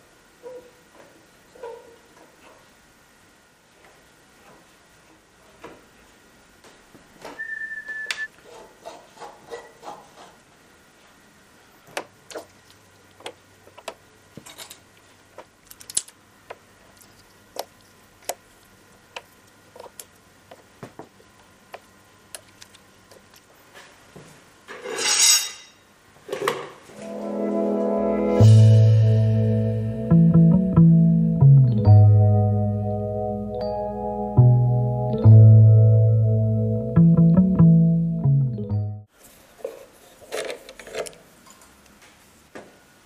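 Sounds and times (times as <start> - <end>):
steady high tone: 26.9 - 39.1.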